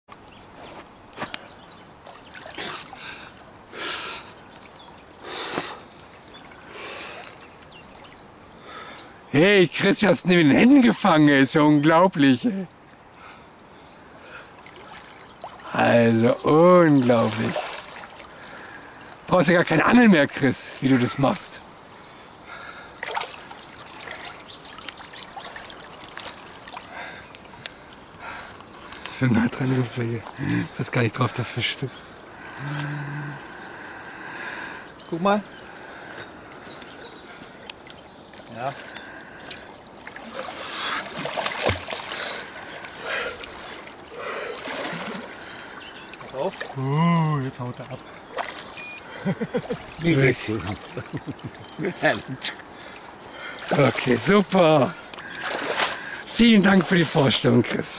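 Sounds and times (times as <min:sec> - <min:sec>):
water splashing and sloshing: 0:01.9 - 0:03.7, 0:04.3 - 0:08.8, 0:14.2 - 0:31.2, 0:35.1 - 0:57.9.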